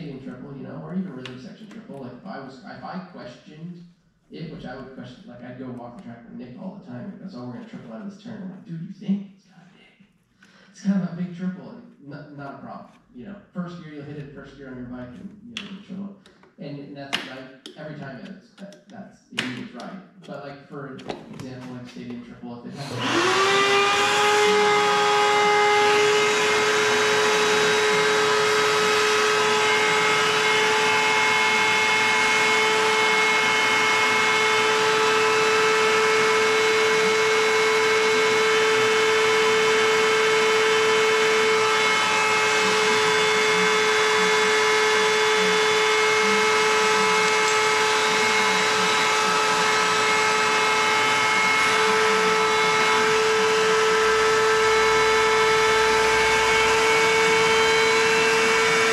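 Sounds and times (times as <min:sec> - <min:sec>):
shop vacuum motor whine: 0:21.9 - 0:58.9.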